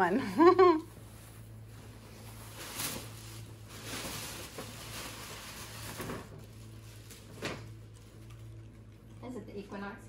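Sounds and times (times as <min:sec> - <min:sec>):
tissue paper and gift bag rustling: 0:00.9 - 0:08.5.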